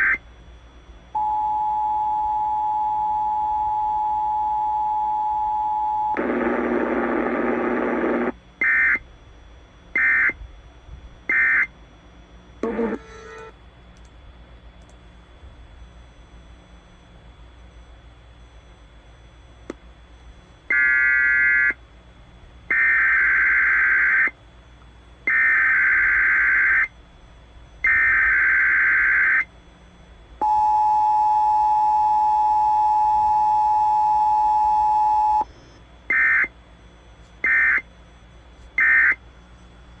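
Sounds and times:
faint radio hiss: 6.2s - 8.6s.

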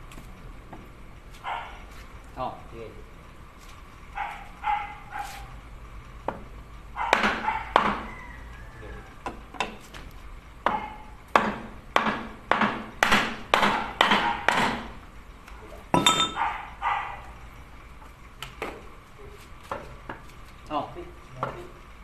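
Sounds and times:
sharp knocks on wooden block: 7.1s - 8.1s, 10.6s - 14.9s
metallic clink ringing: 16.0s - 16.4s.

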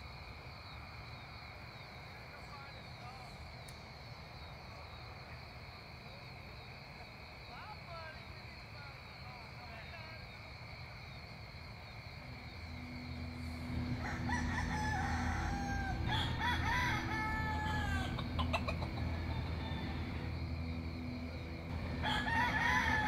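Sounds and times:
steady low hum: 0.0s - 23.0s
rooster crowing: 12.2s - 23.0s.

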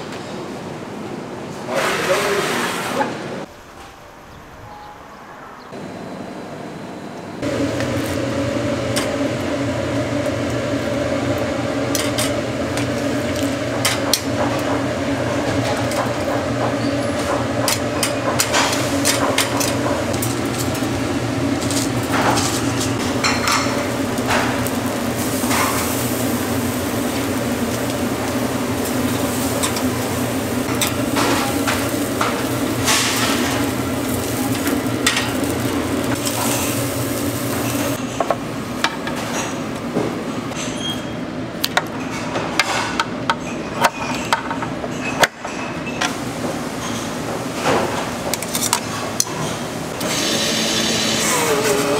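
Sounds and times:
steady machine hum: 5.8s - 40.6s
fish sizzling: 20.3s - 38.0s.

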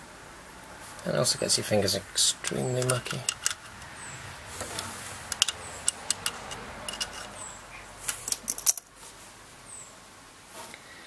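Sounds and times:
small parts clicking and tapping: 2.4s - 3.9s, 4.7s - 7.4s, 8.0s - 8.9s.

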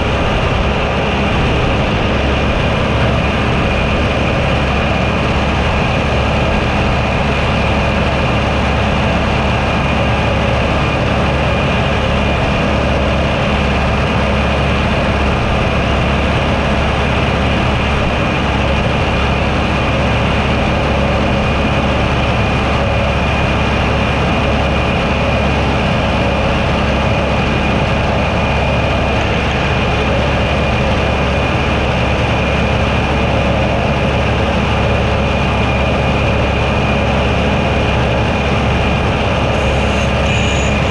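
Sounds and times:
high-pitched mower whine: 0.0s - 40.9s
tractor engine running: 0.0s - 40.9s.

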